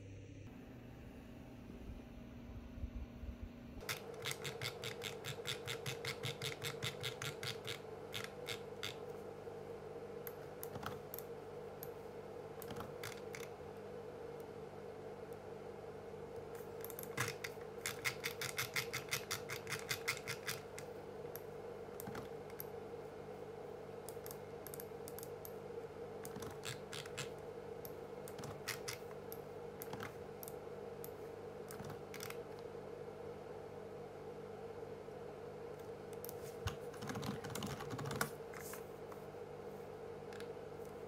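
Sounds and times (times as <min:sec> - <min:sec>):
faint steady hum: 0:00.0 - 0:41.0
computer keyboard typing: 0:03.8 - 0:09.1, 0:12.6 - 0:13.5, 0:16.8 - 0:22.7, 0:26.3 - 0:27.4, 0:31.7 - 0:32.4, 0:36.2 - 0:38.4.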